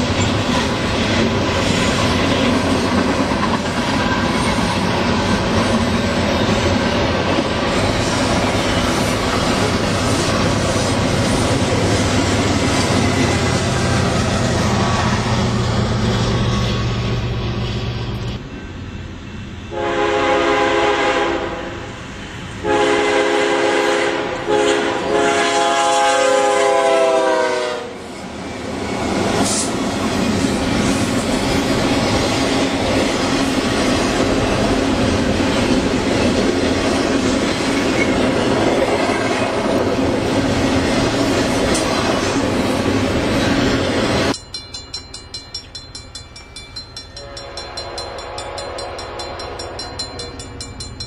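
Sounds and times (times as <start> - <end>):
train wheels clattering on rails: 0.0 - 14.8, 28.8 - 51.0
locomotive air horn blasts: 19.7 - 21.9, 22.6 - 28.0, 47.2 - 49.6.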